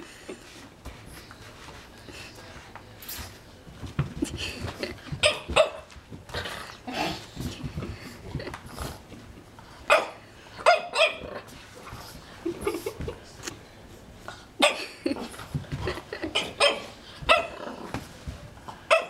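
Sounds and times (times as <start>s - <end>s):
puppy barking: 9.9s - 11.3s, 16.4s - 17.6s.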